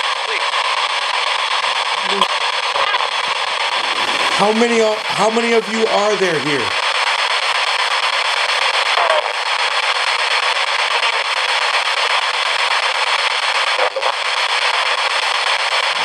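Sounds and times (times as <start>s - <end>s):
radio static hiss: 1.8s - 6.9s, 13.6s - 14.4s
snippet of broadcast sound: 3.5s - 6.8s.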